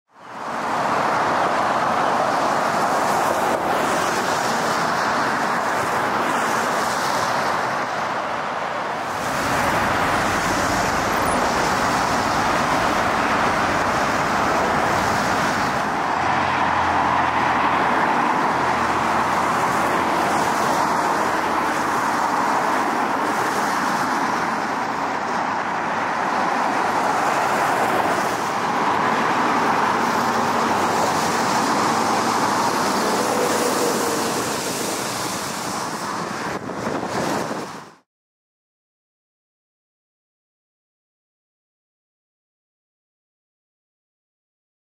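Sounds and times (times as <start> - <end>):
deep traffic rumble: 0.3 - 38.0
tyre hiss on wet pavement: 26.5 - 36.5.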